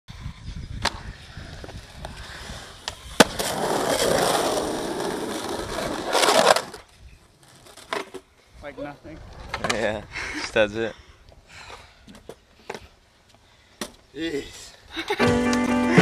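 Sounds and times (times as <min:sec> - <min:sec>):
skateboard wheels rolling on concrete: 0:00.7 - 0:10.1.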